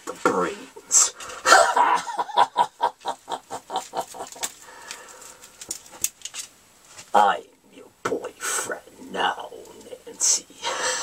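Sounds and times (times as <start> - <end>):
man cackling villain laugh: 1.4 - 4.5.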